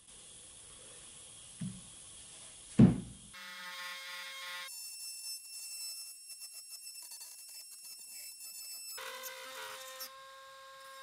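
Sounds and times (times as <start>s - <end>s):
rotary tool buzzing: 3.3s - 11.0s.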